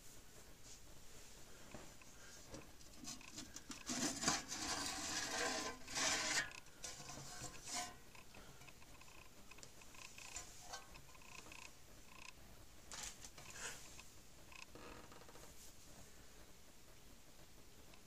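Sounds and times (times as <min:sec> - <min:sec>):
metal cover scraping off chassis: 0:03.0 - 0:08.1.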